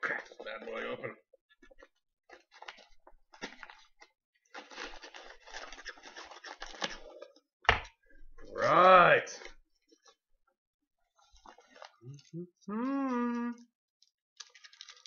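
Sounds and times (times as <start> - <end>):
paper crinkling: 1.6 - 7.4, 11.1 - 12.6, 14.4 - 15.0.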